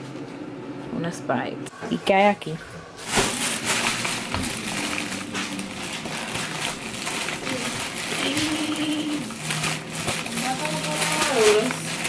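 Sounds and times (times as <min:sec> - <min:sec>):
plastic bag rustling and crinkling: 0:03.0 - 0:12.0.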